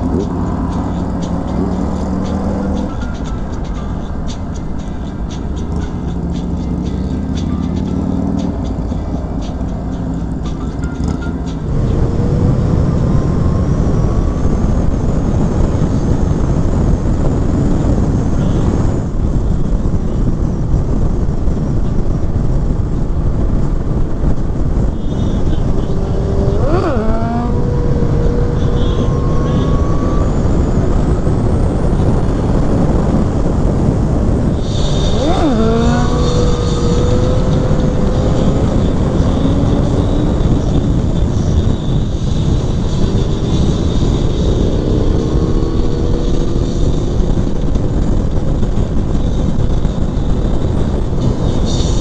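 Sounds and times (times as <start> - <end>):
motorcycle engine shifting gears: 0.0 - 19.4, 20.2 - 52.0
wind rush over microphone: 11.6 - 52.0.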